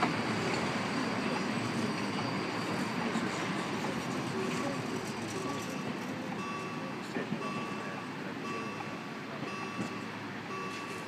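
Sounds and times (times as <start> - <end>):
street traffic hum: 0.0 - 11.0
reversing alarm beeping: 5.4 - 11.0.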